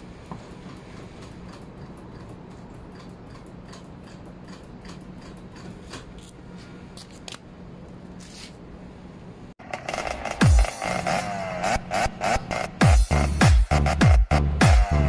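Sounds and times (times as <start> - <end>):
steady low hum: 0.0 - 15.0
music: 9.6 - 15.0.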